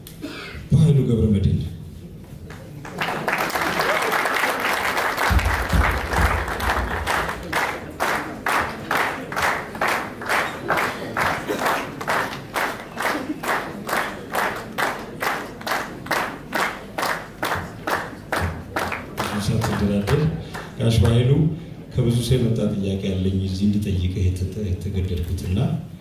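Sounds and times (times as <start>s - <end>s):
audience rhythmic clapping: 2.4s - 21.4s.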